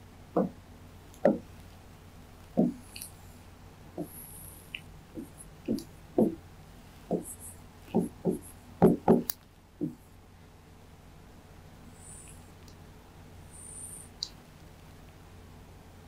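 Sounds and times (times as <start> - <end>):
steady low hum: 0.0 - 16.0
pen knocking on writing board: 0.4 - 0.6, 2.6 - 2.8, 5.2 - 6.4, 7.1 - 7.3, 7.9 - 10.0.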